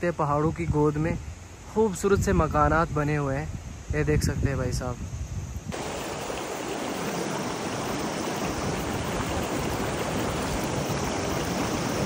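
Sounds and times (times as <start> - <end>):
river rushing over rocks: 5.8 - 12.0.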